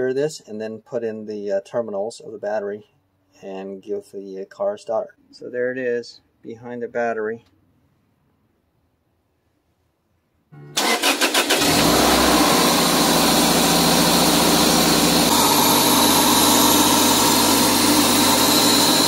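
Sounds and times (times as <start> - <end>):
car starter cranking: 10.6 - 14.4
car engine idling: 10.6 - 19.0.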